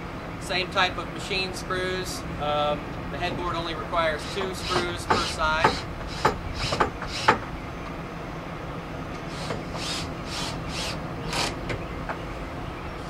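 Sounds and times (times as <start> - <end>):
cordless drill driving screws: 4.2 - 7.4, 9.3 - 11.6.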